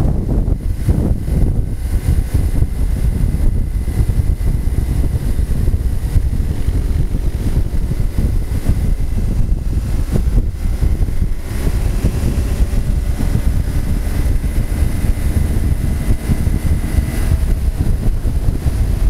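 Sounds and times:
motorcycle engine and tyres: 0.0s - 19.0s
wind buffeting microphone: 0.0s - 19.0s.

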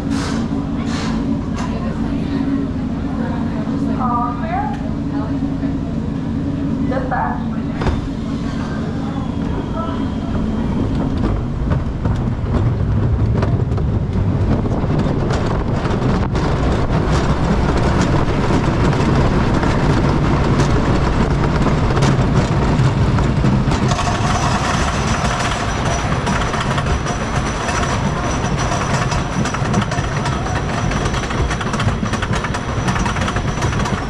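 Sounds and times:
roller coaster rumbling on track: 0.0s - 34.0s
mechanical whine: 6.2s - 34.0s
wheels clicking and clacking: 9.4s - 34.0s.

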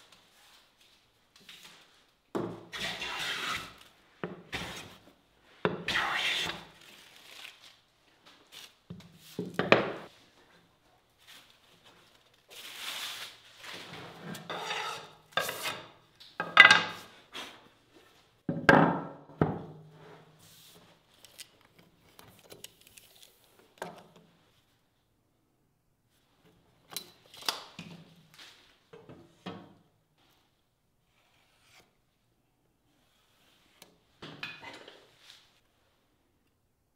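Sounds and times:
hand scraping wood: 2.8s - 3.8s, 4.5s - 5.0s, 5.8s - 6.8s, 13.8s - 16.0s.

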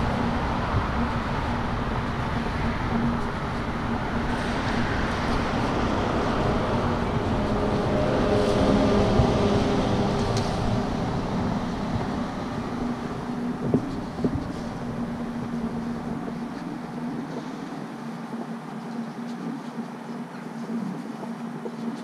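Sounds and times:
vehicle passing: 0.0s - 16.5s.

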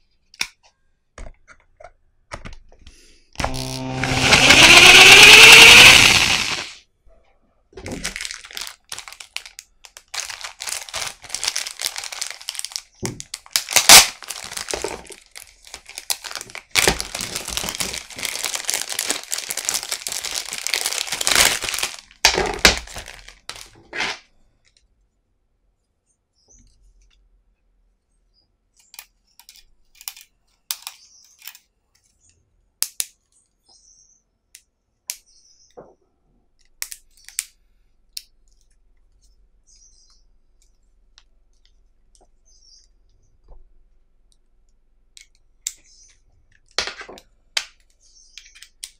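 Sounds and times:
plastic bag crinkling: 7.8s - 24.2s.

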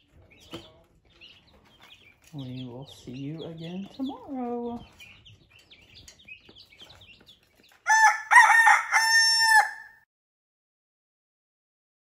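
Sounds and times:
baby chicks peeping: 0.0s - 9.9s
rooster crowing: 7.9s - 10.0s.

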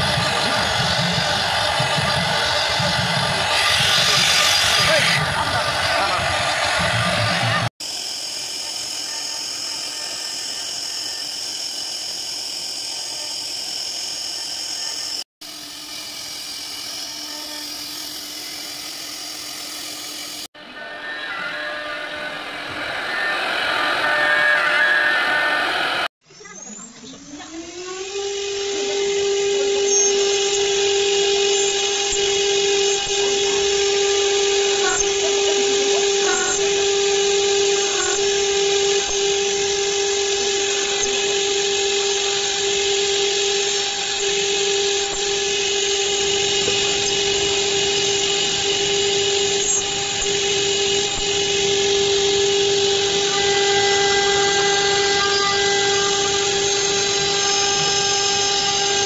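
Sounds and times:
hiss of metal cutting: 0.0s - 26.1s, 27.9s - 59.0s
router spindle whining: 0.0s - 59.0s.

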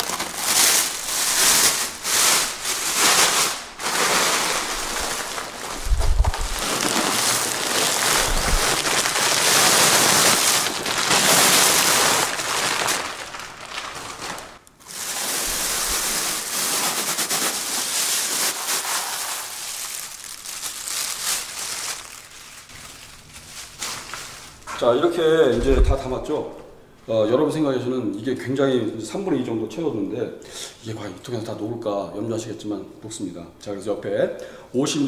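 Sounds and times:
flakes pouring into plastic barrel: 0.0s - 23.0s.

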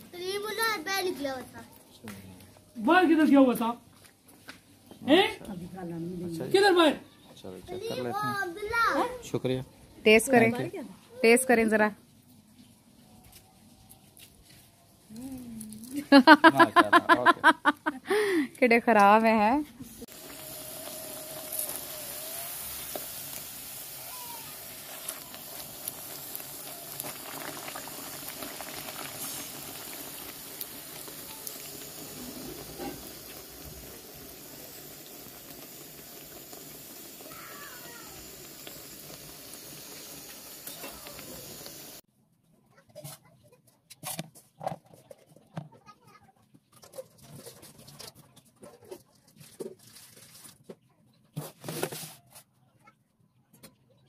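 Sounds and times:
flatbread sizzling in hot oil: 19.8s - 42.1s.

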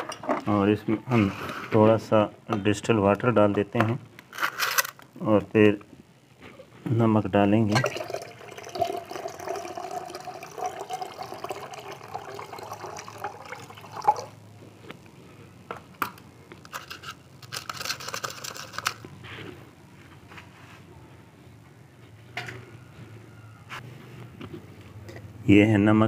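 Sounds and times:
water pouring into glass beaker: 7.7s - 14.4s.

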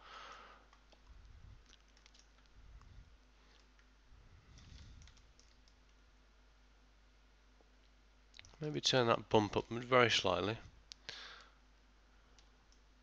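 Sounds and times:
keyboard clicks: 0.7s - 2.5s, 5.0s - 6.0s
computer mouse clicks: 0.7s - 2.9s, 4.6s - 6.0s.

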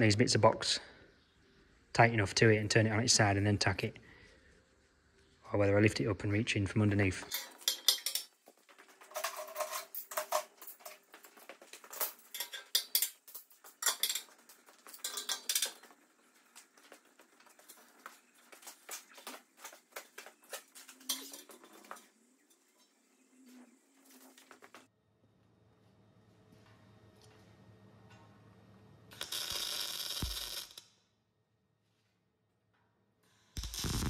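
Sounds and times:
metal clamps clanking on wheel rim: 7.2s - 16.0s.

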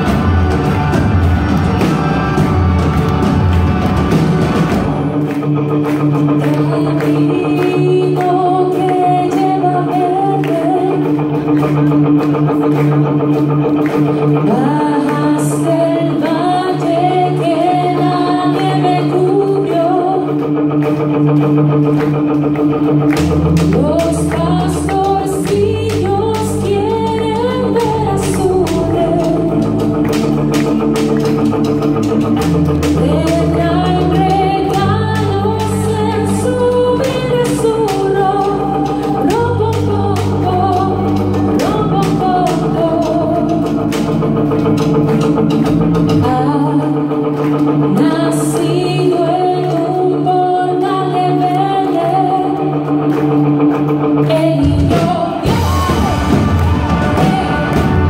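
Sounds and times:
electric bass: 0.0s - 58.0s
electric guitars: 0.0s - 58.0s
woman singing: 5.9s - 11.8s, 14.0s - 20.9s, 23.1s - 31.3s, 32.8s - 44.7s, 46.1s - 58.0s.

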